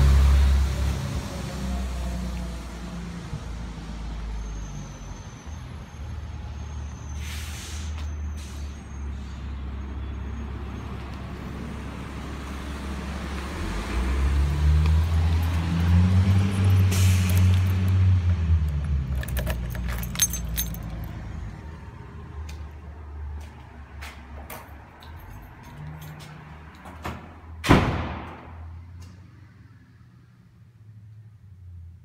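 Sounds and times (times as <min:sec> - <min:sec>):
street traffic: 0:00.0 - 0:32.0
air brake hiss: 0:07.1 - 0:09.6, 0:16.8 - 0:17.5
bus engine running: 0:11.0 - 0:22.8.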